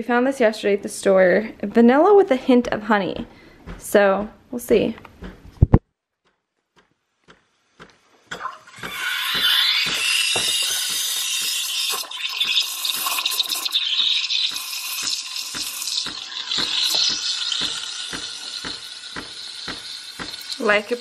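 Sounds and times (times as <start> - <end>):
milk frothing pops and crackles: 6.3 - 21.0
steam wand hissing into milk: 8.5 - 21.0.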